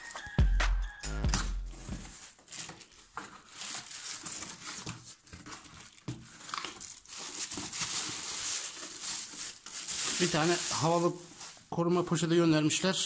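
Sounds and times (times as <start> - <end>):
cardboard scraping and rustling: 1.7 - 11.7
bubble wrap crinkling: 1.7 - 12.3.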